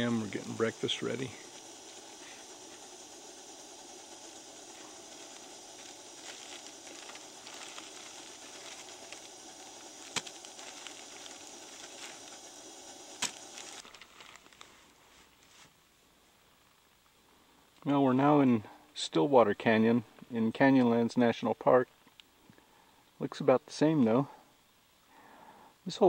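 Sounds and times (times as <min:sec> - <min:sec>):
camp stove hissing: 0:00.0 - 0:15.6, 0:25.1 - 0:26.0
light crackling: 0:00.0 - 0:15.8.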